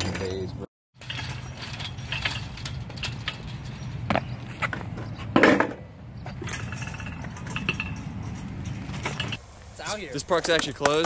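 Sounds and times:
chain-link fence jangling: 1.0 - 4.1, 6.4 - 9.4
bike clanking against a fence: 1.0 - 9.4.

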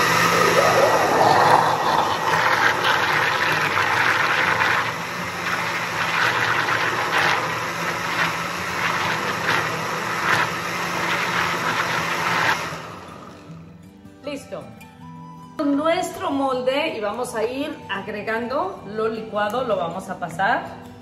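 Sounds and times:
blender motor running: 0.0 - 13.6.

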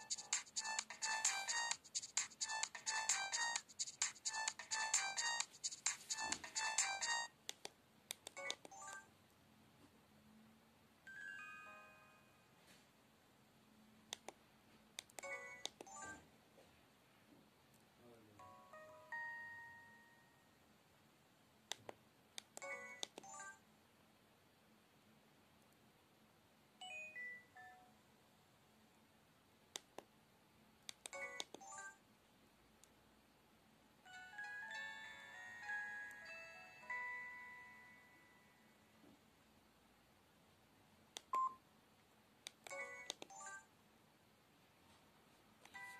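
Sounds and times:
keypad clicks: 30.9 - 31.7, 42.5 - 43.4
mobile phone electronic chime: 34.1 - 38.6.

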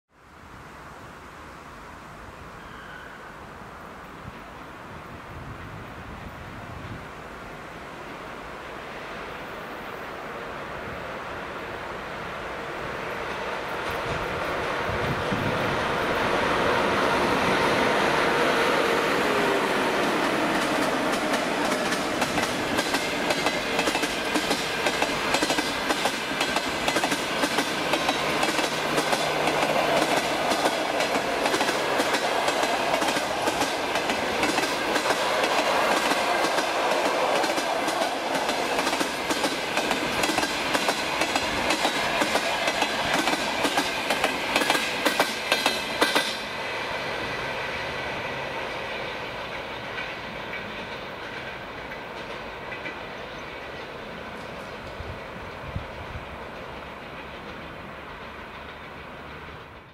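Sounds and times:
train rumble: 3.8 - 59.9
train wheels clicking over rail joints: 19.1 - 59.9.

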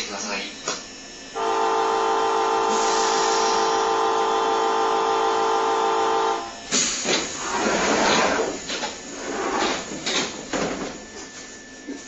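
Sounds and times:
train door buzzer: 1.3 - 8.5
hiss: 2.6 - 3.8, 6.7 - 9.8
sliding doors scraping shut: 6.8 - 11.0.

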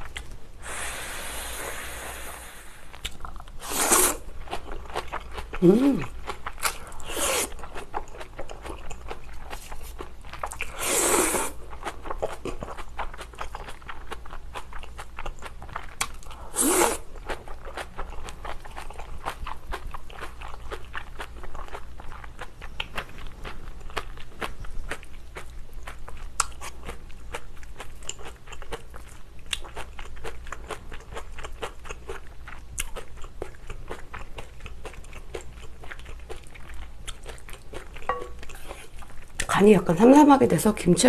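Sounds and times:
wet chewing: 2.9 - 39.9
slurping noodles: 3.6 - 4.3, 7.0 - 7.6, 10.6 - 11.6, 16.4 - 17.1.

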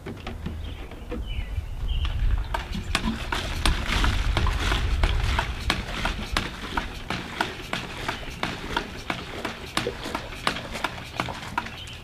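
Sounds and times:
hand pump knocking and clicking: 2.0 - 12.0
water pouring into plastic jug: 2.2 - 11.8.

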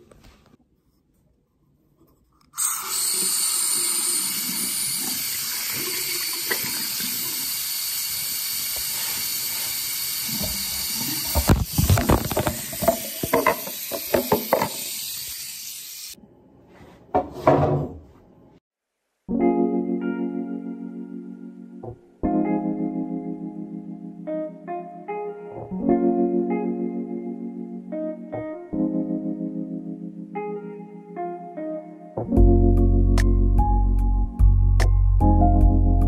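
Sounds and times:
water running: 2.6 - 16.2.

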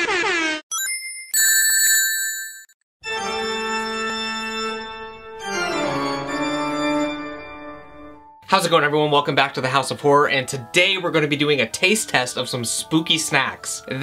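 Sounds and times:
sustained organ chords: 3.1 - 8.4.

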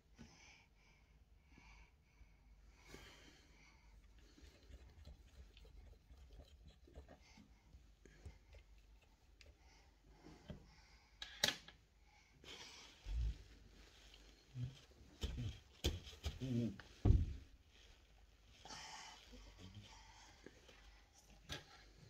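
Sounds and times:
dull thump: 17.0 - 17.4.

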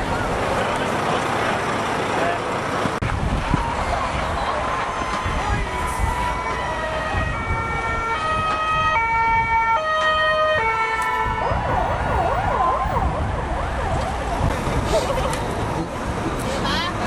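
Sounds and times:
low rumble of engines: 0.0 - 17.0
sirens wailing: 3.4 - 15.8.

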